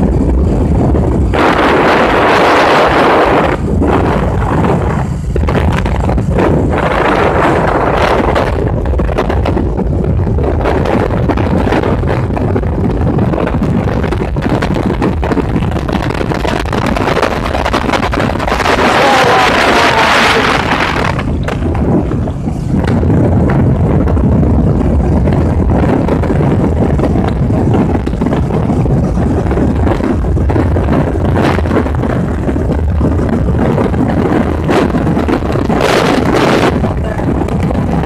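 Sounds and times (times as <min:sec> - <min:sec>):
motorcycle engine running: 0:00.0 - 0:38.0
wind buffeting microphone: 0:00.0 - 0:38.0
hissing rush: 0:16.3 - 0:31.2.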